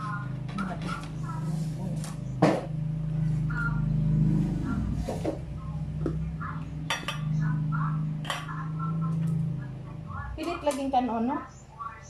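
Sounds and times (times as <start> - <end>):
steady low hum: 0.0 - 12.0
dishes and cutlery clinking: 6.9 - 7.4.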